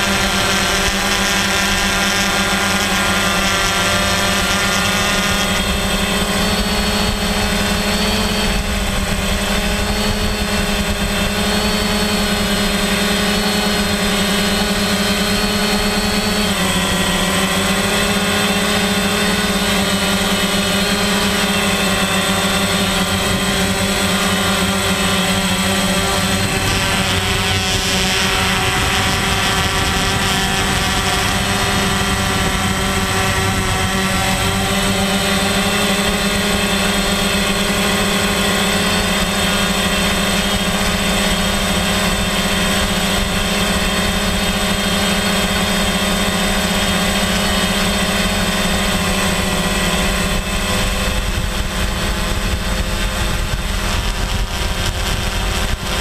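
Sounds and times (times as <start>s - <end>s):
drone propellers whirring: 0.0s - 56.0s.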